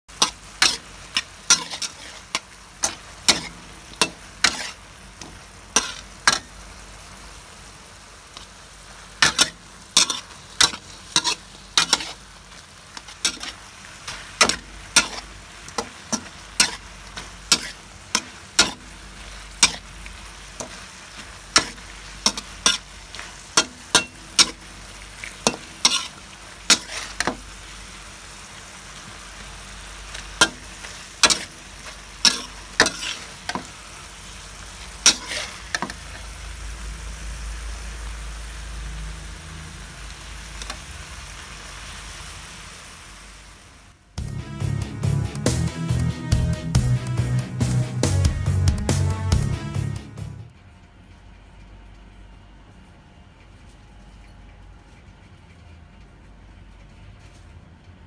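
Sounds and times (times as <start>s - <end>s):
metal spatula scraping a pan: 0.1s - 6.5s, 9.2s - 12.3s, 12.9s - 19.9s, 20.5s - 27.4s, 30.4s - 33.8s, 35.0s - 36.3s
squid sizzling in a wok: 0.1s - 48.6s.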